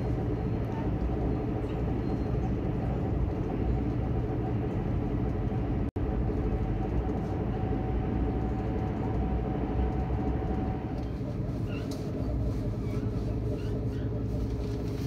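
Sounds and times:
train running low rumble: 0.0 - 15.0.

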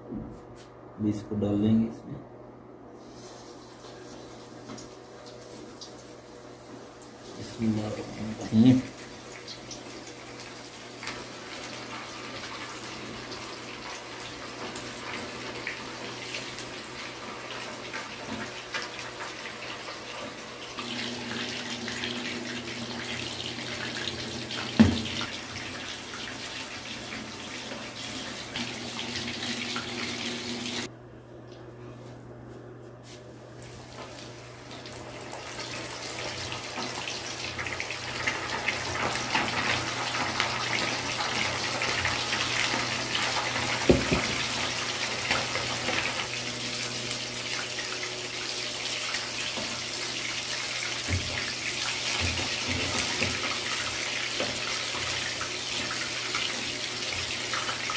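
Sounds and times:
chicken deep-frying in oil: 3.0 - 30.9, 33.8 - 57.9.

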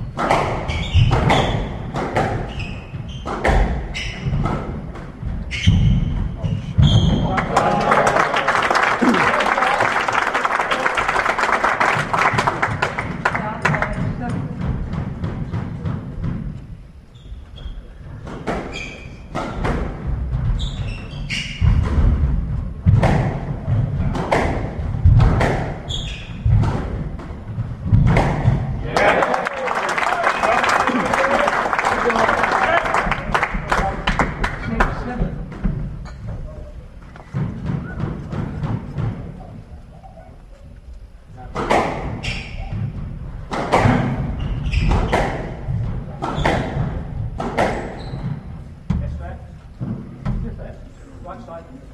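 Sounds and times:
shoes squeaking on wooden floor: 0.0 - 7.4, 16.6 - 19.4, 20.1 - 22.2, 25.8 - 26.7, 42.1 - 43.2, 44.2 - 46.9, 47.8 - 48.8
squash ball struck by rackets: 0.1 - 2.5, 3.2 - 4.8, 19.3 - 20.2, 21.5 - 28.8, 41.5 - 42.9, 43.5 - 48.6
ball thudding off walls: 26.4 - 28.8.

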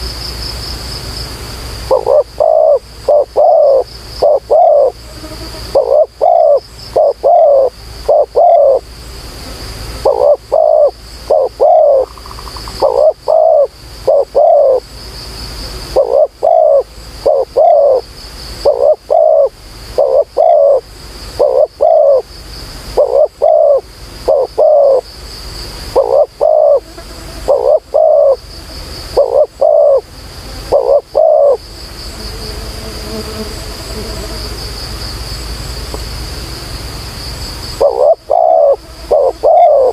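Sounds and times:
insects buzzing: 0.0 - 39.9
dove cooing: 1.9 - 5.0, 5.7 - 8.8, 10.0 - 14.8, 15.9 - 18.0, 18.6 - 20.8, 21.4 - 22.3, 23.0 - 25.0, 25.9 - 26.8, 27.4 - 28.4, 29.1 - 30.1, 30.7 - 31.6, 37.8 - 39.9.

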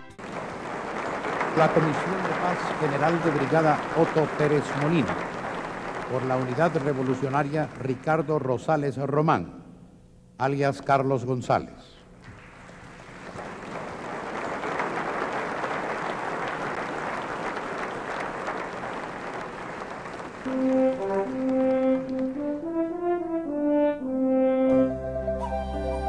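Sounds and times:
audience applauding: 0.0 - 8.8, 12.2 - 22.8
slow brass melody: 20.4 - 26.0.

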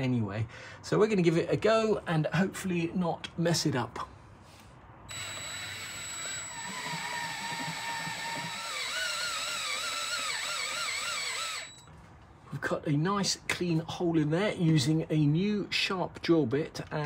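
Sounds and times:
drill bit squealing in metal: 5.1 - 11.9
electric drill motor whine: 5.1 - 11.9.

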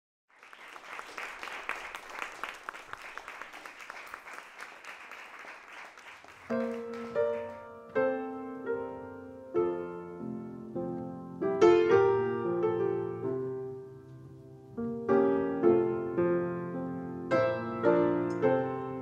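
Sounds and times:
audience clapping: 0.3 - 7.7
grand piano chords ringing: 6.5 - 19.0.

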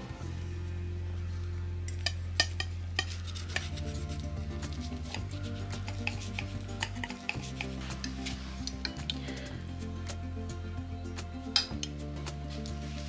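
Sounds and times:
background music: 0.0 - 13.0
cutlery scraping a plate: 5.0 - 8.4.

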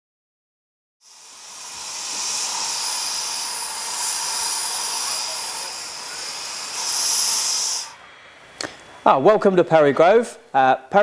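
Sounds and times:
steam locomotive hissing steam: 1.0 - 9.0.

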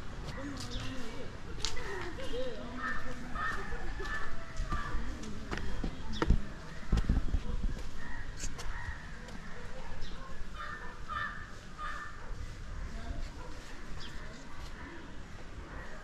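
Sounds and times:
street ambience: 0.0 - 16.0
crows cawing: 2.8 - 5.0, 8.0 - 9.6, 10.6 - 12.2.

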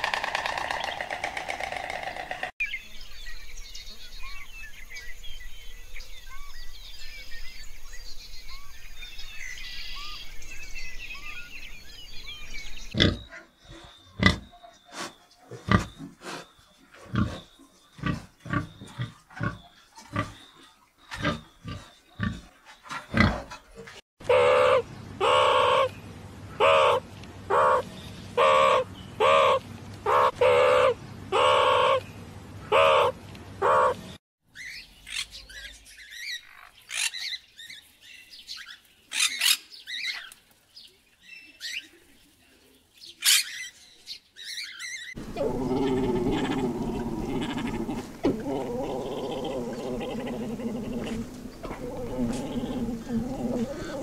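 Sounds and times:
loud pitched animal call: 24.2 - 25.9, 26.6 - 27.8, 28.4 - 32.0, 45.2 - 54.0
animal grunts: 45.2 - 54.0.

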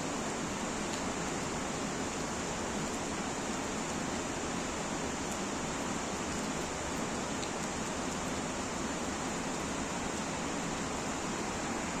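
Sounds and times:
stream rushing: 0.0 - 12.0.

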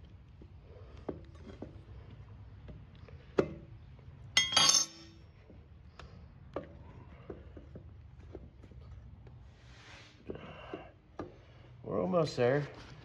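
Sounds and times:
metal tools clinking: 4.4 - 5.2
ringing metal clatter: 4.4 - 5.2.

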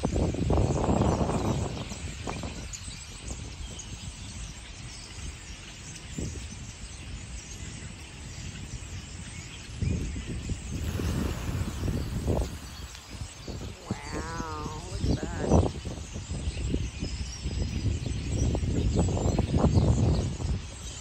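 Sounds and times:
low rumbling gusts: 10.2 - 20.8
starlings chattering: 10.6 - 16.2.

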